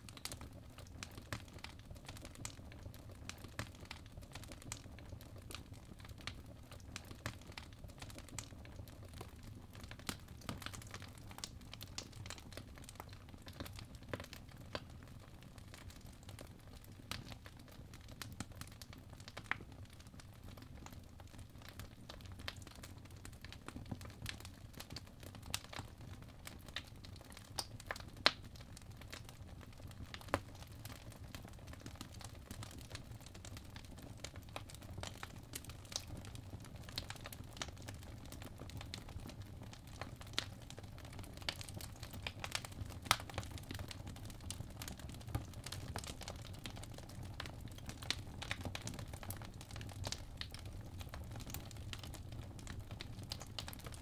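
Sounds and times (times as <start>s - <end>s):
fire popping and crackling: 0.1s - 54.0s.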